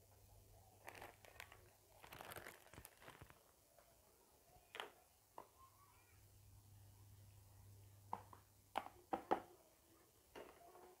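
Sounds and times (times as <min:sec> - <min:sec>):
rustling and crinkling: 0:00.8 - 0:03.9.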